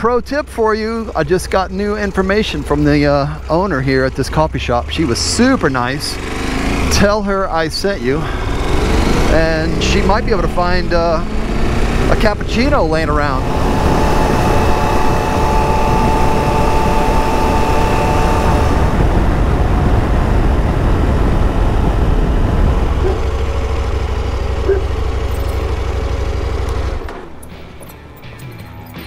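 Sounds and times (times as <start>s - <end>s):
motorcycle engine drone: 0.0s - 29.0s
wind noise: 8.2s - 23.8s.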